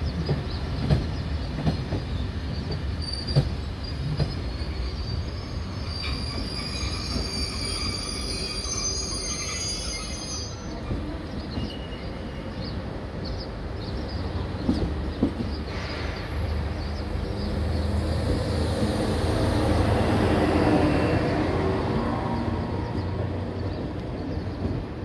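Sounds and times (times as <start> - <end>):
train knocks: 0.0 - 4.6, 14.2 - 20.4
train rumbling past: 0.0 - 25.0
high-pitched metallic squeal: 5.2 - 10.8.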